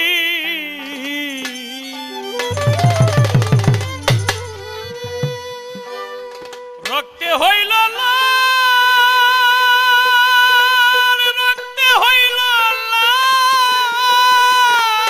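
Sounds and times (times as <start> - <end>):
man singing long held note: 0.0 - 15.0
harmonium drone: 1.4 - 6.9.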